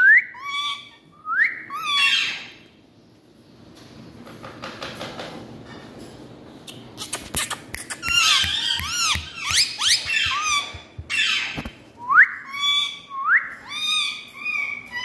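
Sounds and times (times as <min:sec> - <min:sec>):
parakeets chirping: 0:00.4 - 0:02.7, 0:07.0 - 0:11.8, 0:12.4 - 0:15.0.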